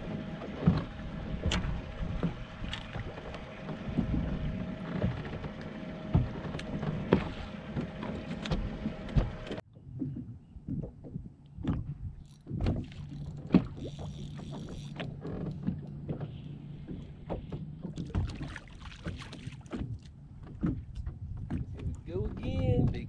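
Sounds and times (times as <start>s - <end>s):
water slapping boat hull: 0.0s - 23.0s
wind on microphone: 20.7s - 23.0s.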